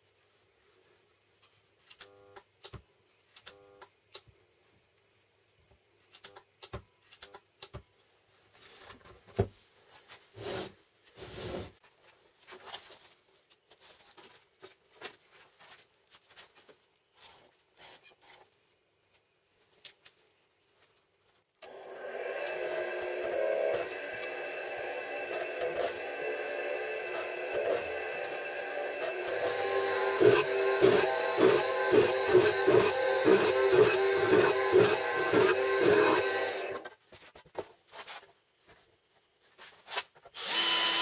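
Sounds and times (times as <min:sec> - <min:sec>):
metal sheet scraping on bench: 0:10.4 - 0:11.8
faint hum: 0:21.6 - 0:36.9.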